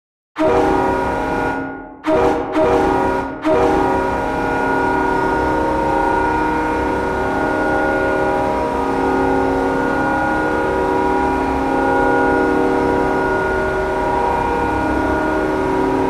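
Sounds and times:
arena goal horn blast: 0:00.4 - 0:16.0.

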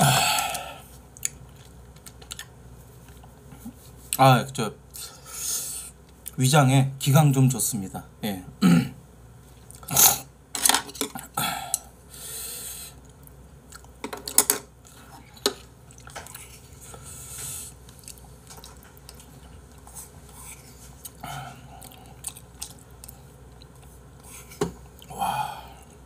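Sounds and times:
chewing: 0:01.1 - 0:03.8, 0:13.0 - 0:14.0, 0:14.8 - 0:25.1.

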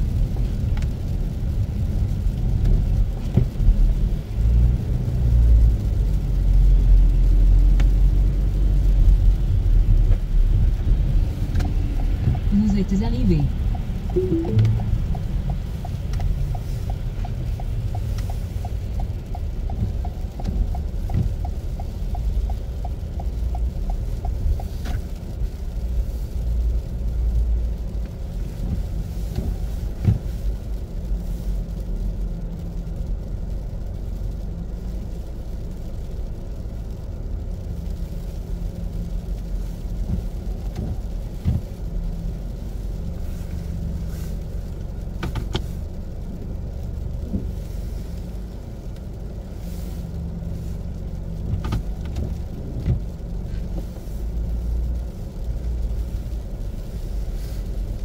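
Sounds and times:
turn signal ticking: 0:05.6 - 0:58.0
car cabin rumble: 0:50.6 - 0:54.6.

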